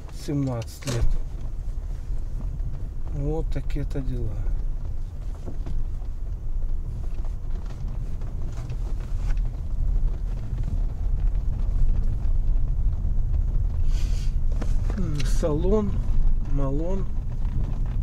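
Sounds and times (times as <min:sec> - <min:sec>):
car cabin rumble: 0:00.0 - 0:18.0
short hiss: 0:13.8 - 0:14.4.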